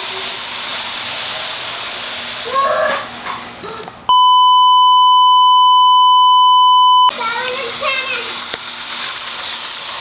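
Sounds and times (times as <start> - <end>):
test-pattern beep: 4.1 - 7.1.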